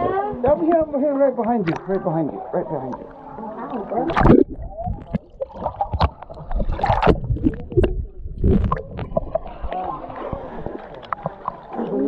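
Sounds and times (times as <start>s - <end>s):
water splashing and sloshing: 0.4s - 12.0s
muffled underwater gurgling: 4.1s - 12.0s.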